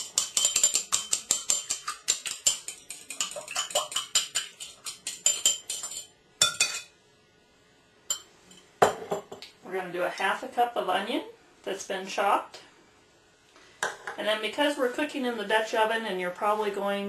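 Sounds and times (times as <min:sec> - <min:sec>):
fork clinking against a dish: 0:00.0 - 0:06.9.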